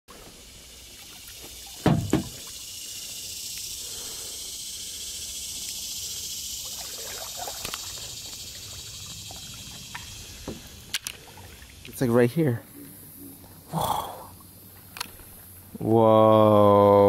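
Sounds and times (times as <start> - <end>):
high-pitched insect chorus: 0.1 - 17.0
paddle splashes: 6.6 - 12.0.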